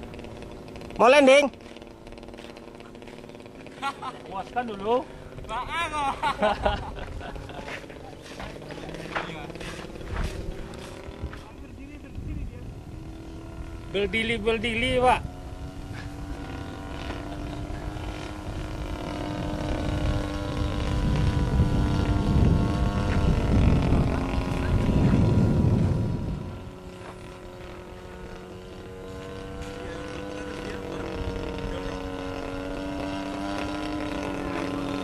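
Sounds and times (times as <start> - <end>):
model plane engine: 0.0 - 35.0.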